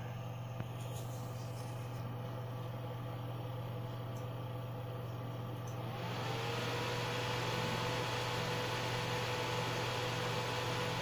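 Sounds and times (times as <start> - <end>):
cooling fans humming: 0.0 - 11.0
fan whine rising in pitch: 5.6 - 11.0.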